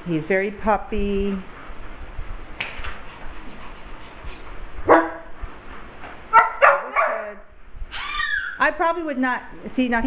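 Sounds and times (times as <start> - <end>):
dog barking: 4.9 - 5.3, 6.3 - 7.4.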